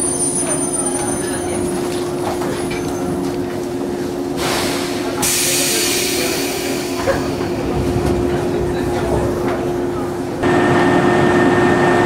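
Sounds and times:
train hum: 0.0s - 12.0s.

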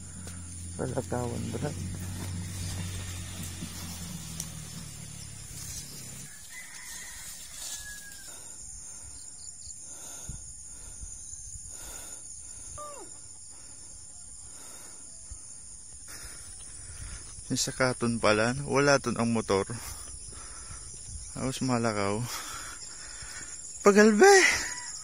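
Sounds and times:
insects buzzing: 0.0s - 25.0s
rooster crowing: 6.1s - 8.6s.

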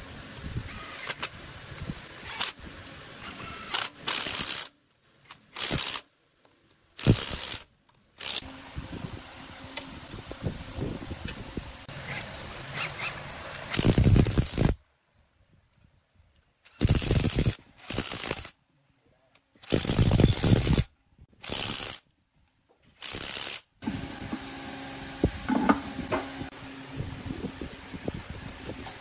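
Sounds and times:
bursts of mechanical clatter: 3.2s - 4.7s, 7.0s - 8.5s, 11.9s - 14.8s, 16.7s - 18.6s, 19.6s - 22.0s, 23.0s - 23.7s.

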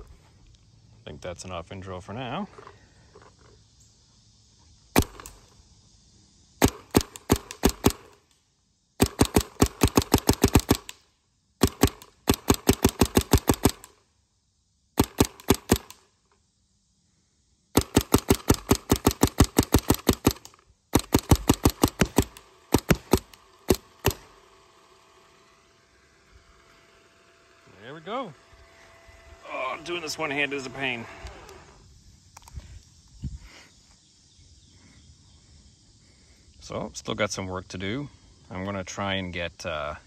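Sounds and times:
paintball marker rapid firing: 5.0s - 5.4s, 6.6s - 8.2s, 9.0s - 11.0s, 11.6s - 14.0s, 15.0s - 16.1s, 17.7s - 24.4s.

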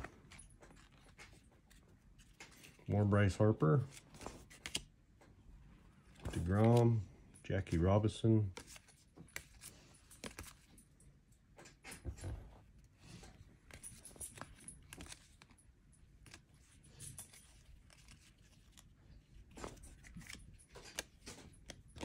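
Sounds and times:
cards sliding and clicking: 0.0s - 2.9s, 3.8s - 4.9s, 6.0s - 7.0s, 8.5s - 10.7s, 12.7s - 15.6s, 16.2s - 22.0s.

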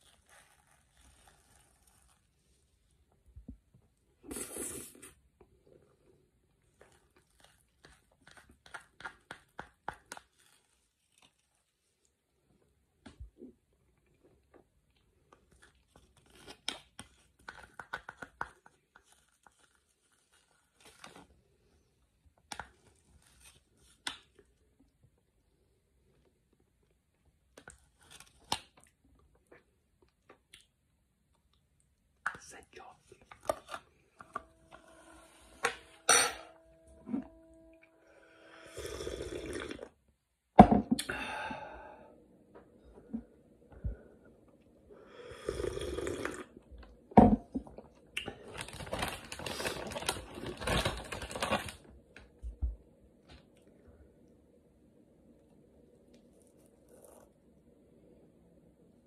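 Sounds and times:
man slurping a drink: 4.3s - 5.2s, 38.6s - 39.9s, 45.3s - 46.5s
mug knocking on table: 40.6s - 41.0s, 47.2s - 47.4s
man breathing out: 41.0s - 42.2s
foil lid crinkling: 48.4s - 51.9s.

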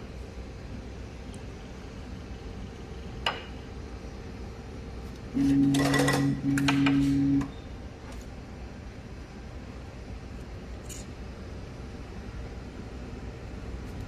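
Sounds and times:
motor hum with mechanical rattle: 0.0s - 14.0s.

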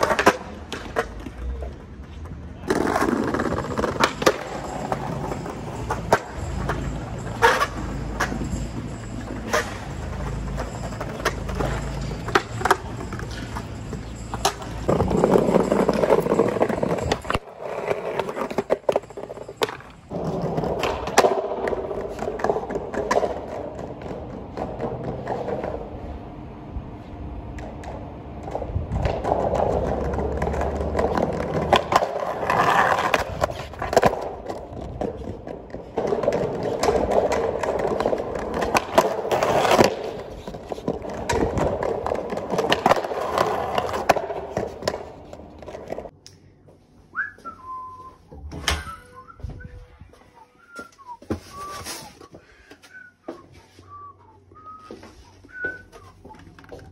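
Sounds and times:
skateboard clacks and knocks: 0.0s - 26.4s, 27.5s - 46.1s
skateboard wheels rolling on concrete: 0.0s - 56.9s.

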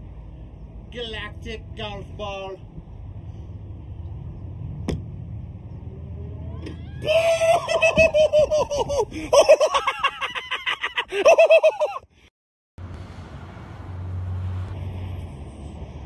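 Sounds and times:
high-pitched cackling laugh: 7.2s - 12.1s.

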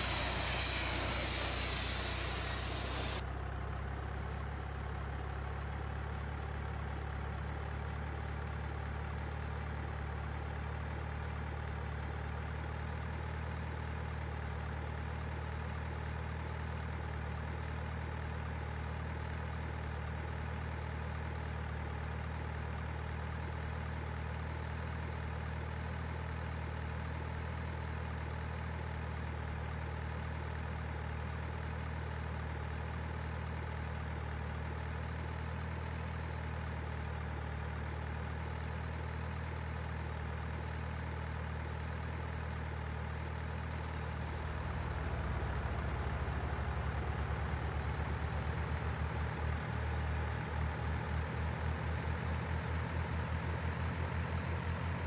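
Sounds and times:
truck engine idling hum: 0.0s - 4.2s, 41.9s - 55.0s.

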